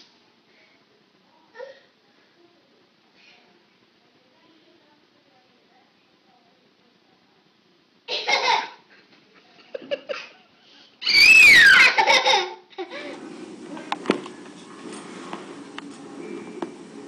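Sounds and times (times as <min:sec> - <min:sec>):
baby laughing in shrieks: 0:11.0 - 0:12.6.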